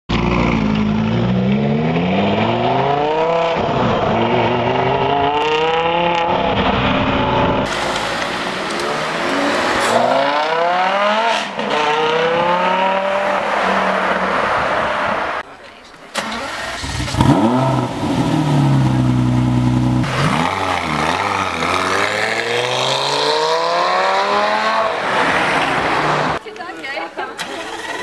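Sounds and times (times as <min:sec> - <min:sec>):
sports car engine accelerating: 0:00.1 - 0:13.6, 0:16.6 - 0:26.4
sports car engine revving through gears: 0:07.5 - 0:13.4, 0:16.6 - 0:25.4.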